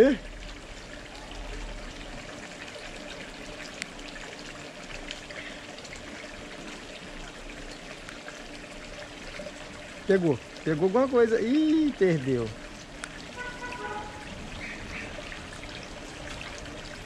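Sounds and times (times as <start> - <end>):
light rain: 0.0 - 17.0
water pouring into pond: 0.0 - 17.0
raindrop ticks: 12.7 - 15.8.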